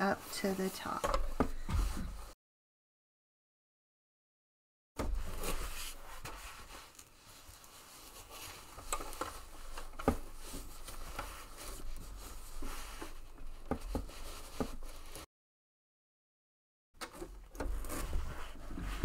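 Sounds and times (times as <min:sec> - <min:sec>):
fabric and foam rustling: 0:00.0 - 0:02.4, 0:05.0 - 0:15.3, 0:17.6 - 0:19.0.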